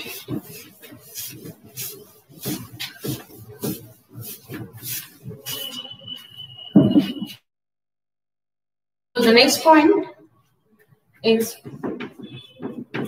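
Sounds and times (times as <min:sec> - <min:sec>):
duster wiping a chalkboard: 0:00.0 - 0:06.4
loud knock: 0:11.7 - 0:13.0.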